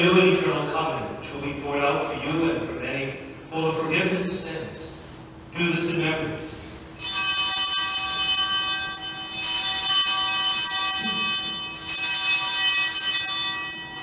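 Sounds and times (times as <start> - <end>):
small altar bells ringing: 6.9 - 14.0.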